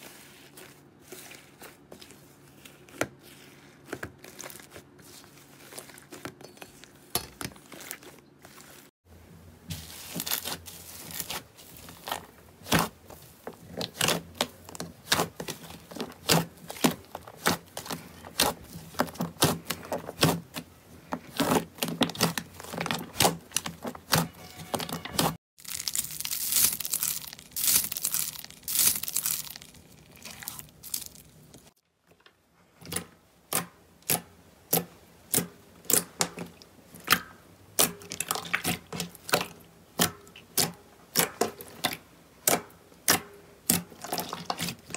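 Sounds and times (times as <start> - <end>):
slime squishing and popping: 21.3 - 31.3.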